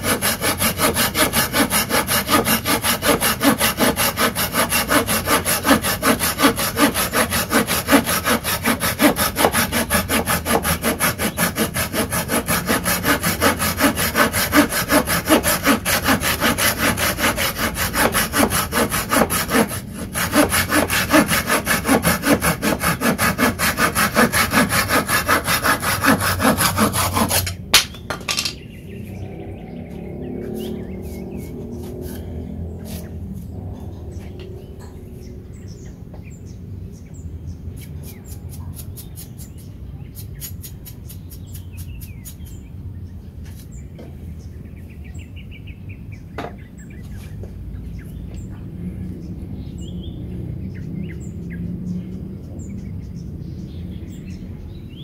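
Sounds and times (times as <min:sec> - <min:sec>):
hand saw cutting wood: 0:00.0 - 0:28.5.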